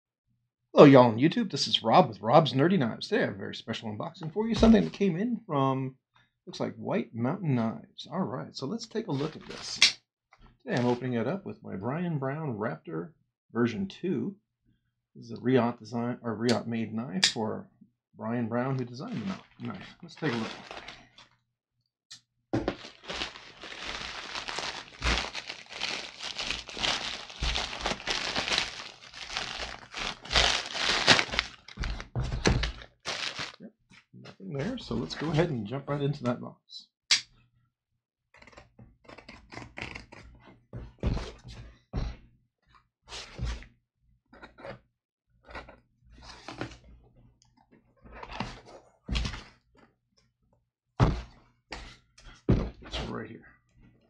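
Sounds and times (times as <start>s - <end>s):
box pulled from envelope: 19.2s - 21.2s, 22.7s - 32.0s, 32.7s - 33.6s
plastic mailer envelope crinkling: 19.2s - 21.2s, 22.6s - 33.6s
envelope being slit open: 22.8s - 31.8s.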